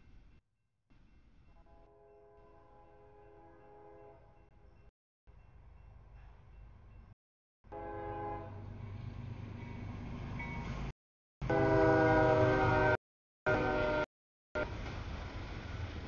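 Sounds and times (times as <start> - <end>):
low train rumble: 1.0 - 16.0
locomotive air horn: 1.7 - 4.2, 7.7 - 8.6, 11.4 - 14.1.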